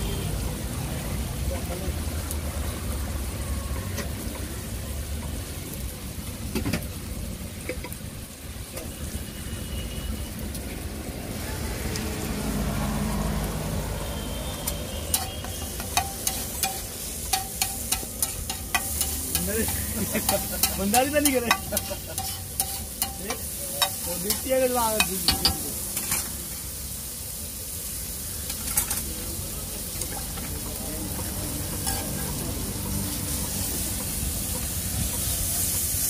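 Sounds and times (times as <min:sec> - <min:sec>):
oil sizzling: 0:00.0 - 0:36.0
spatula clacking on griddle: 0:14.6 - 0:26.3, 0:30.0 - 0:35.8.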